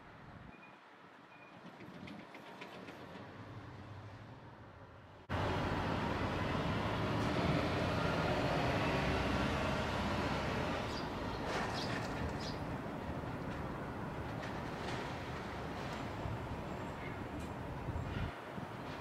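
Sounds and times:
sparrows chirping: 0:10.8 - 0:12.7.

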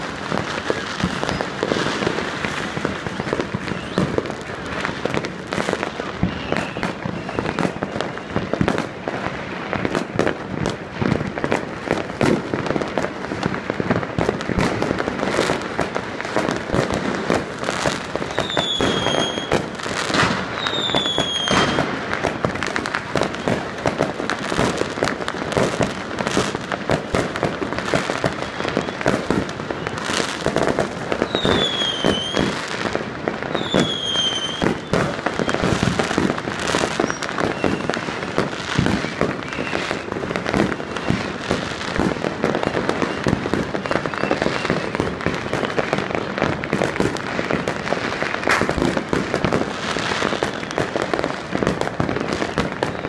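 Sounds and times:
fireworks bangs and crackling: 0:00.0 - 0:53.0
high falling whistles: 0:31.2 - 0:32.4.

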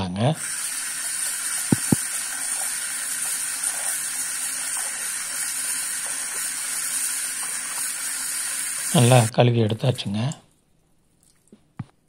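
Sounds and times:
tap water pouring into pot: 0:00.4 - 0:09.3.

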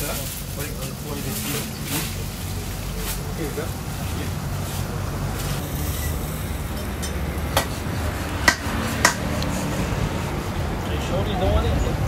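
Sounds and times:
metal spatula clacking on griddle: 0:08.5 - 0:09.3.

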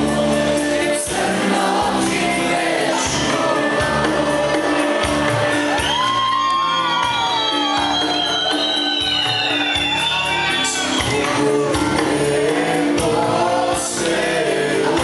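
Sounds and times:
live pop music with male singer: 0:00.0 - 0:15.0
audience whooping and shouting: 0:03.1 - 0:12.0.

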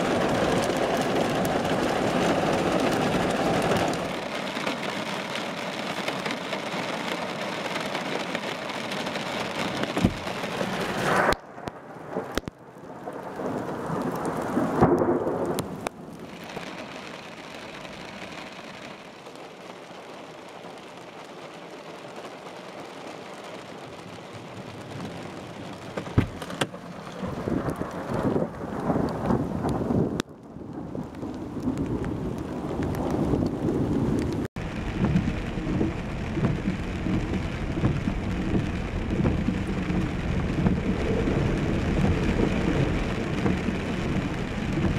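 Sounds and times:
heavy rain on window glass: 0:00.0 - 0:44.9
rumbling thunder: 0:10.0 - 0:16.1, 0:27.2 - 0:44.9.

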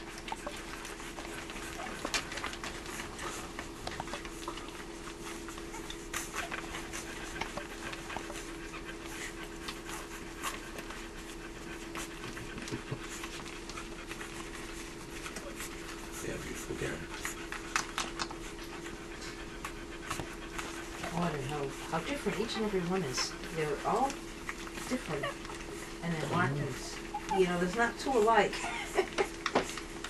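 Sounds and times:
puppies snuffling: 0:00.0 - 0:30.0
steady low hum: 0:00.0 - 0:30.0.

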